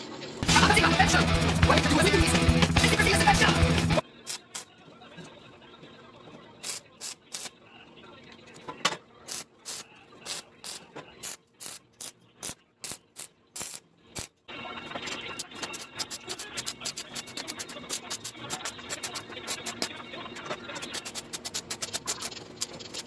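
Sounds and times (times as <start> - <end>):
background music: 0.4 - 4.0
stick welder crackling clicks: 9.3 - 14.3.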